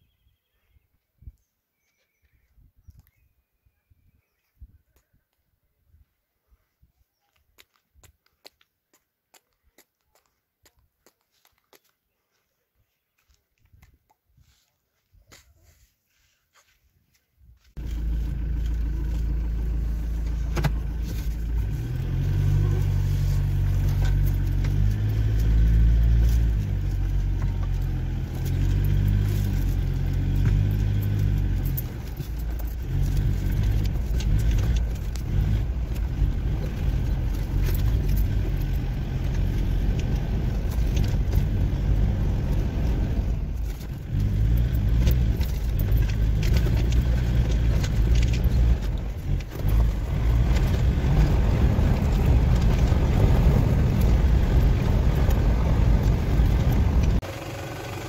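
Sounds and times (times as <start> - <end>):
car engine from inside cabin: 17.8 - 58.0
light clicks and rattles: 43.6 - 57.2.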